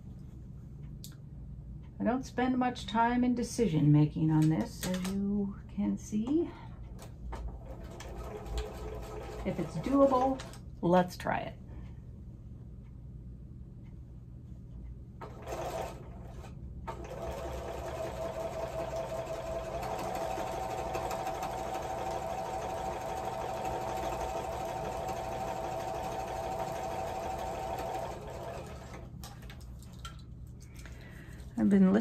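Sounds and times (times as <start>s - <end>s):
sewing machine whining: 7.5s - 10.6s, 15.2s - 29.1s.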